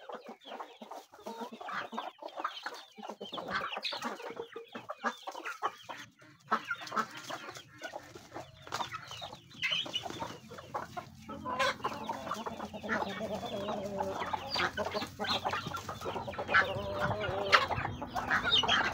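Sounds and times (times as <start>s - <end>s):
chickens clucking: 0.0s - 18.9s.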